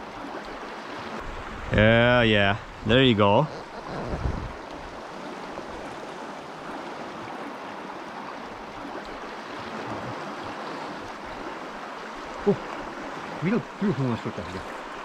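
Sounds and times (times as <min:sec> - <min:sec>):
river water rushing: 0:00.0 - 0:15.0
person's voice: 0:01.7 - 0:03.5.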